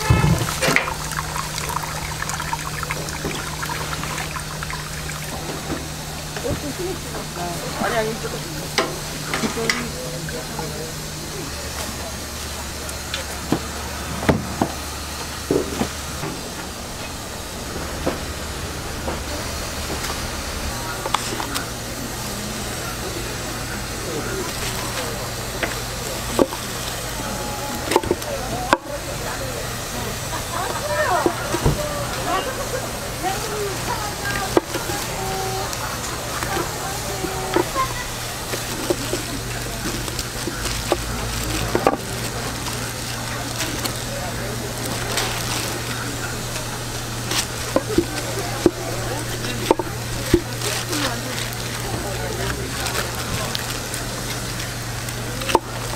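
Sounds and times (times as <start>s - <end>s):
low hum: 0.0s - 29.2s
steam hissing: 0.0s - 55.9s.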